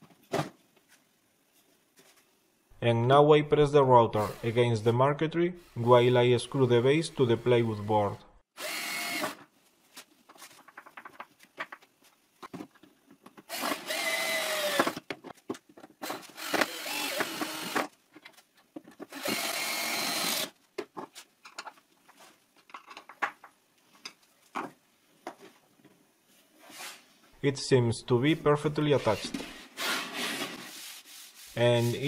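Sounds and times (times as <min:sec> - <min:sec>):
drill driver driving screws: 0:13.5 - 0:15.0, 0:16.0 - 0:17.9, 0:19.1 - 0:20.5
small clicks and knocks: 0:20.8 - 0:25.4.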